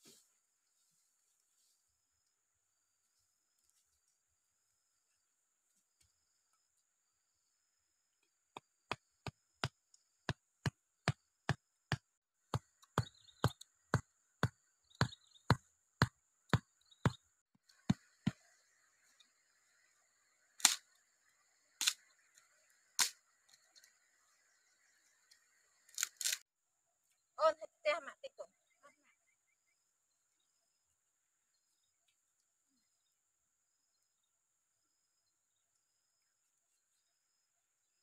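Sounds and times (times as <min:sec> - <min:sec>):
wooden stake being pounded: 0:08.5 - 0:18.5.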